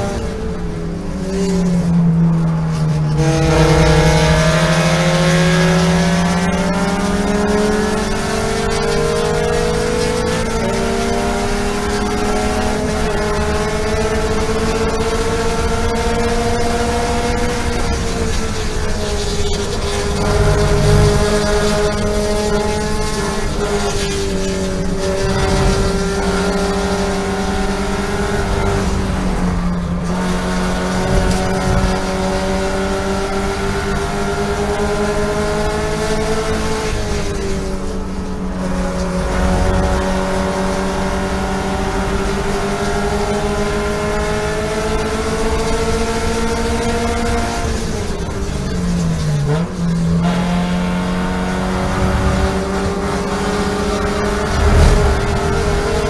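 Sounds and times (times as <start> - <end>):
race car engine at high revs: 0.0 - 56.0.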